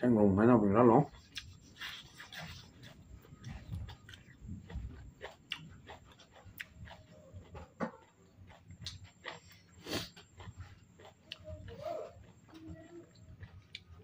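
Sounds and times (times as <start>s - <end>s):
man chewing and smacking lips: 1.0s - 14.0s
small mouth clicks: 1.2s - 1.6s, 2.3s - 7.0s, 8.5s - 14.0s.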